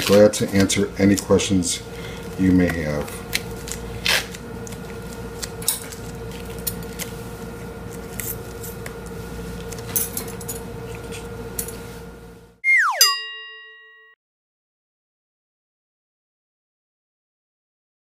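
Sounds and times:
steady hum: 0:00.0 - 0:13.6.

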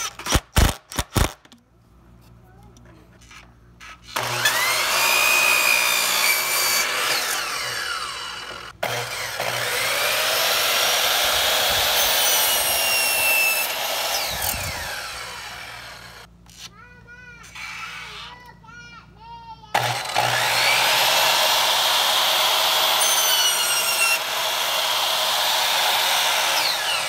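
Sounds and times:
miter saw cutting wood: 0:04.1 - 0:16.3, 0:19.8 - 0:27.0.

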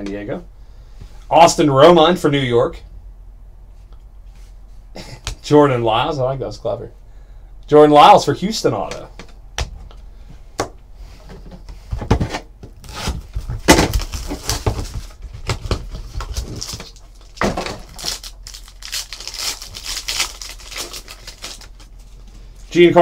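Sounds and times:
wrapper crinkling and tearing: 0:13.6 - 0:22.3.

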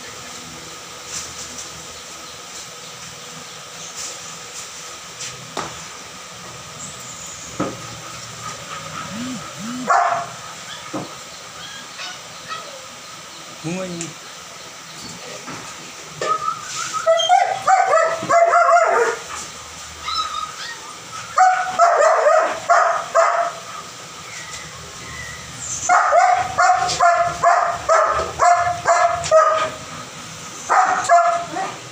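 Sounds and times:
dog barking high-pitched yelps: 0:09.1 - 0:10.9, 0:17.0 - 0:19.2, 0:20.0 - 0:23.6, 0:25.9 - 0:29.7, 0:30.7 - 0:31.8.

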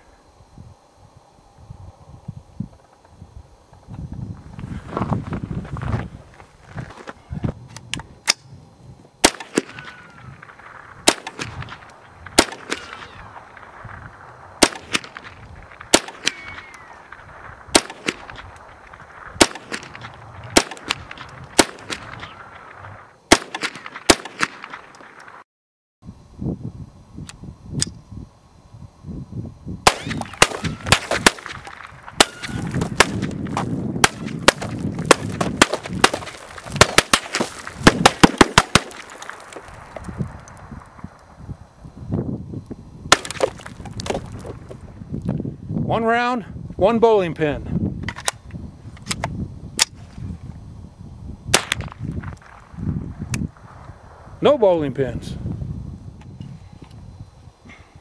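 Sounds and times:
rifle shots: 0:09.2 - 0:25.4, 0:29.8 - 0:39.9, 0:43.1 - 0:43.6, 0:51.5 - 0:52.6.

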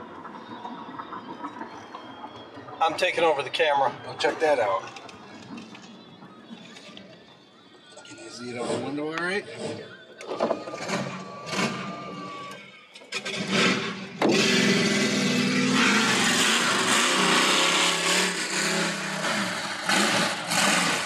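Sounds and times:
loud engine revving high: 0:08.6 - 0:21.0.

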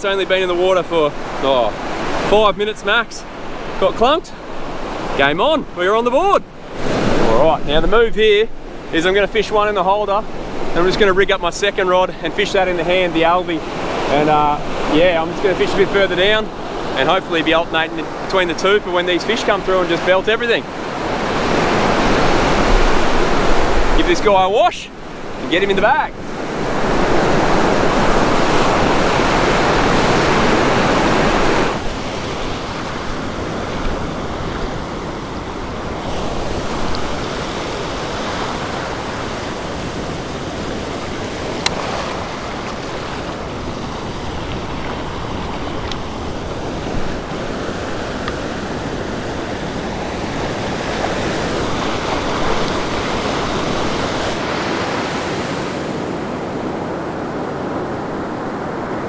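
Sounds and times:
ocean surf breaking on a beach: 0:00.0 - 0:59.0.

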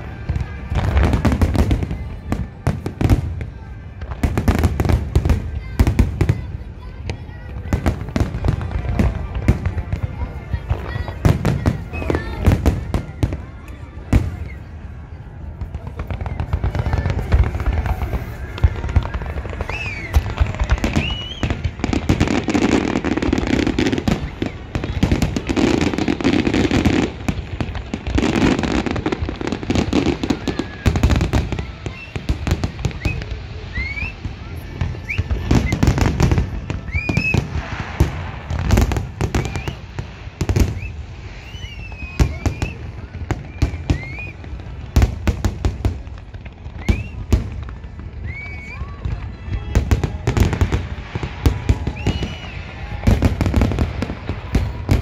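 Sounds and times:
fireworks booming and crackling: 0:00.0 - 0:55.0
firework whistles: 0:15.9 - 0:45.3, 0:46.6 - 0:55.0.

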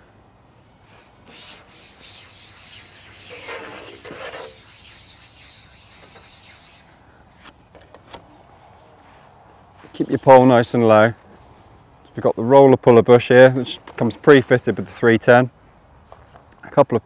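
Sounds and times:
fishing pole rubbing: 0:00.9 - 0:07.5.

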